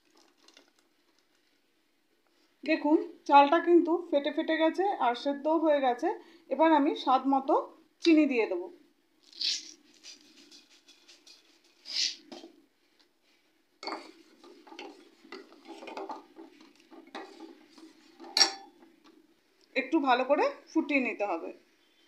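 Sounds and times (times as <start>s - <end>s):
spoon scraping inside pot: 13.8s - 18.6s
metal spoon clinking against pot: 18.2s - 18.7s.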